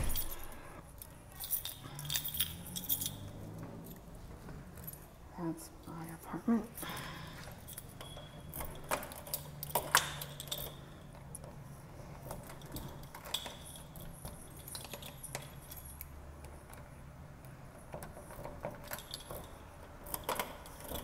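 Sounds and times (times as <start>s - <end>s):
keys jangling: 0.0s - 5.1s, 6.7s - 16.8s, 17.8s - 21.0s
steady low hum: 0.0s - 21.0s.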